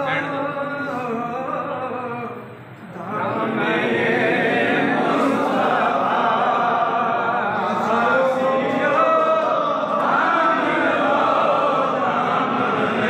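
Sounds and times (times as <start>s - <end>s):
crowd of men chanting: 3.0s - 13.0s.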